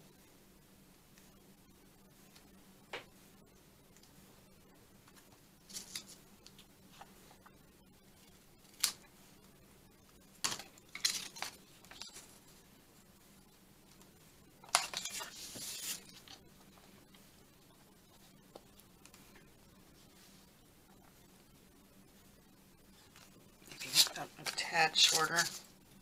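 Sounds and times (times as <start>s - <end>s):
paper rustling: 5.7s - 6.2s, 14.7s - 16.4s, 23.7s - 25.7s.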